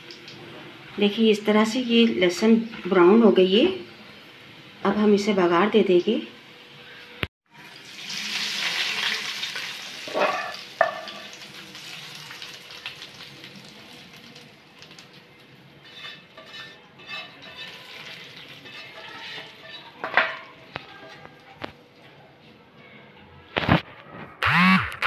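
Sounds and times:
hot oil sizzling: 0.0 - 20.7
spoon scraping frying pan: 10.0 - 11.4, 15.8 - 21.4
spoon clanking on pan: 10.1 - 11.4, 15.9 - 21.3.

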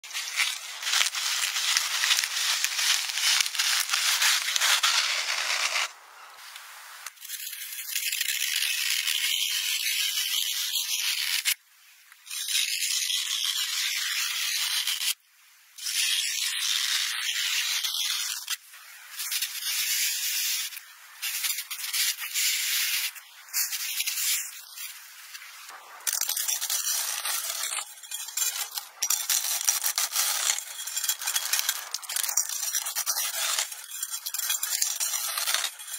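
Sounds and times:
blade crushing dry noodles: 0.0 - 5.9, 26.0 - 35.9
paint cracking and flaking: 0.0 - 5.9, 20.7 - 35.9.

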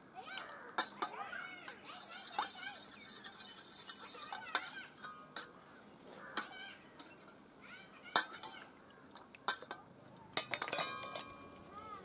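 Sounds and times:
spoon clinking against steel bowl: 1.7 - 5.6, 10.4 - 11.7.

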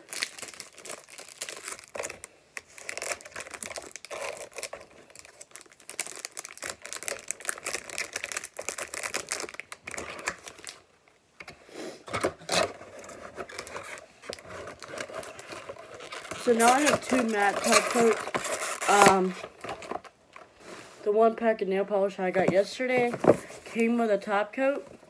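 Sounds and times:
plastic packaging crinkling: 0.0 - 10.8, 12.3 - 20.5.

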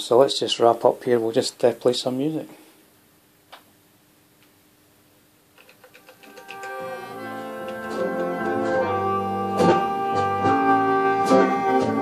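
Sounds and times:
recorded music through amplifiers: 5.6 - 12.0.

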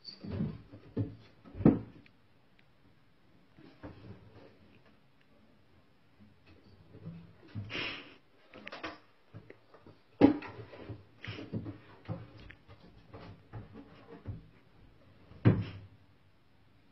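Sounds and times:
wooden drawer knocking and scraping: 0.2 - 2.0.

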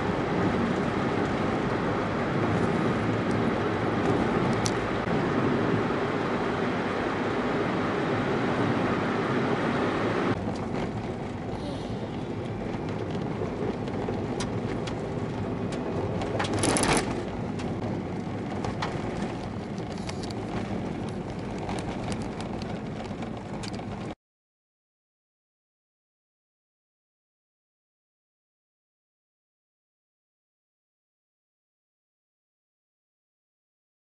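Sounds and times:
gravel ticking under tyres: 0.0 - 6.0, 10.3 - 24.2
car road and engine noise: 0.0 - 24.2
car rattle: 10.4 - 24.1.

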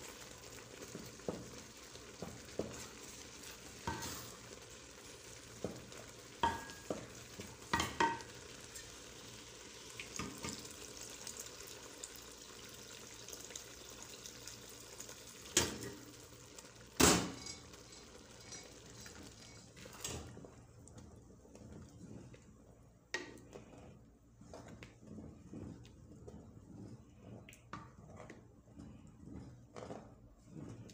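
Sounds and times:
food sizzling: 0.0 - 21.2
wooden spoon stirring in a pot: 0.0 - 30.9.

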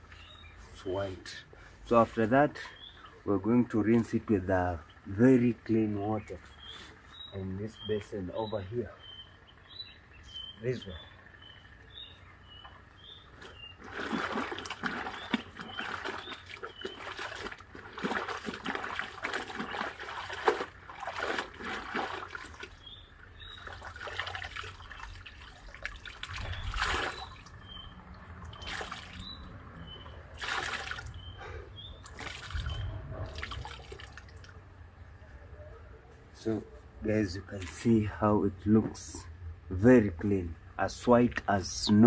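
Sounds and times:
water splashing in a basin: 13.7 - 31.4, 32.0 - 34.6
water dripping from wrung cloth: 13.8 - 29.5, 32.0 - 34.6.

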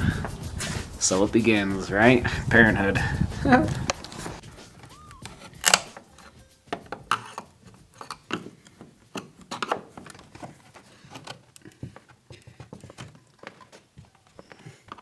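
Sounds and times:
screwdriver prying metal grille: 4.8 - 11.6.

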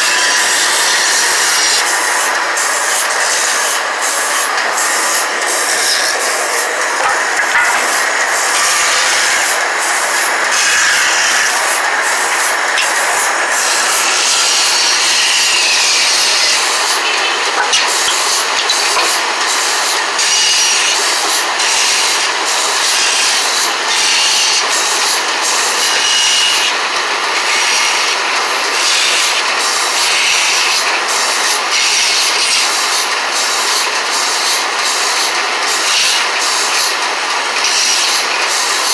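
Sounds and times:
band saw cutting wood: 0.0 - 38.9.

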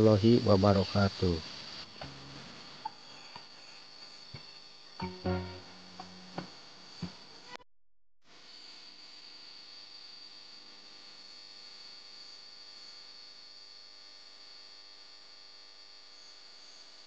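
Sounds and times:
high-pitched insect drone: 0.0 - 7.5, 8.4 - 17.0
soft hiss: 0.0 - 7.6.

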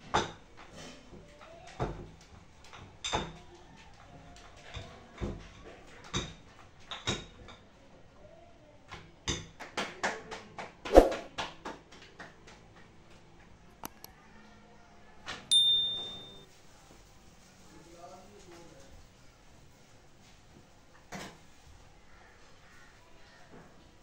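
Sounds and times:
bell ding: 15.5 - 16.4.

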